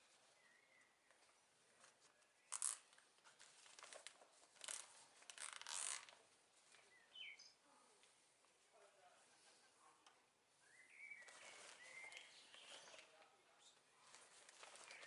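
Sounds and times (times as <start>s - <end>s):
plastic tarpaulin rustling: 3.1s - 6.9s, 11.2s - 13.3s, 13.9s - 15.0s.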